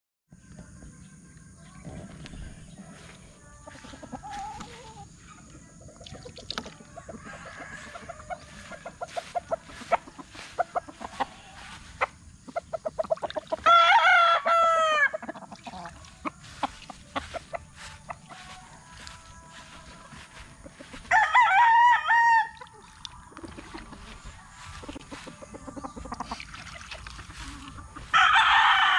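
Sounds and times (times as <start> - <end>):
rooster crowing: 6.9 - 12.1, 13.5 - 15.2, 17.2 - 22.9, 27.4 - 28.9.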